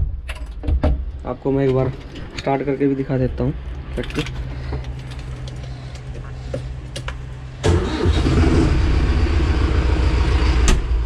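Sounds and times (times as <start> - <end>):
diesel tractor engine starting: 6.2 - 11.0.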